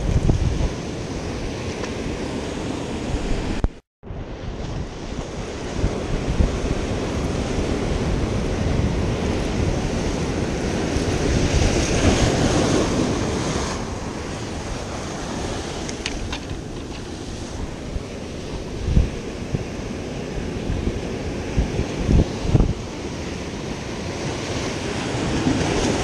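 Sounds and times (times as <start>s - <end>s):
wind buffeting microphone: 0.0s - 26.0s
surf breaking against rocks: 4.6s - 20.8s, 21.5s - 26.0s.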